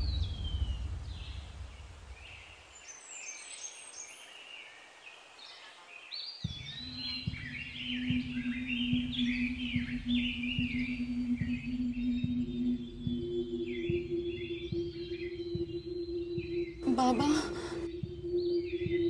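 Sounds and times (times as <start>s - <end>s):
low rumble: 0.0s - 2.6s, 6.8s - 19.0s
birds chirping: 0.0s - 19.0s
steady low hum: 6.8s - 19.0s.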